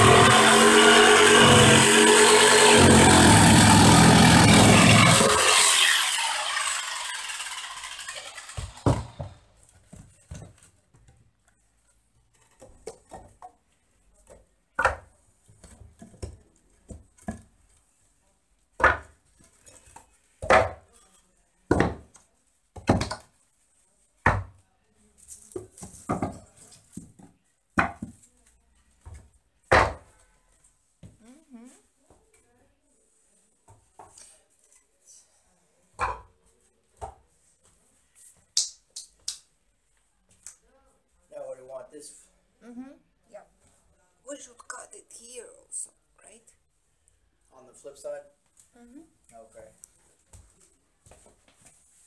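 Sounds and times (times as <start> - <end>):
jigsaw cutting wood: 0.0 - 9.3
wooden boards knocking: 29.7 - 30.1.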